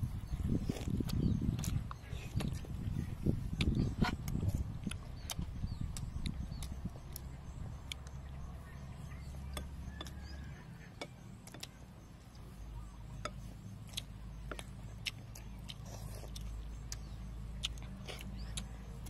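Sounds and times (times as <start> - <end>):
lip-smacking chewing: 0.5 - 12.5, 13.2 - 19.0.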